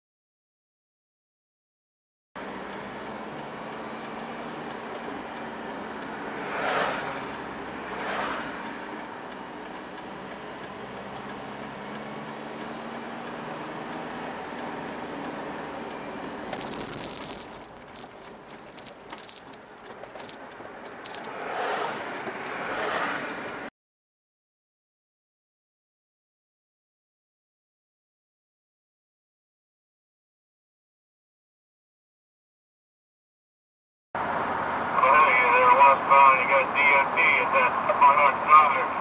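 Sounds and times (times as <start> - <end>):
car engine hum: 2.4 - 23.7, 34.2 - 39.0
passing vehicles on wet road: 2.4 - 23.7, 34.2 - 39.0.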